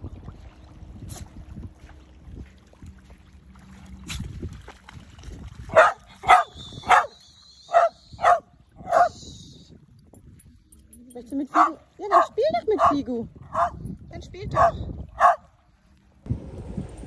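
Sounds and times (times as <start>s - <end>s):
low wind: 0.0s - 17.0s
water noise: 0.0s - 17.0s
dog barking: 5.7s - 7.1s, 7.7s - 9.2s, 11.6s - 13.8s, 14.6s - 15.5s.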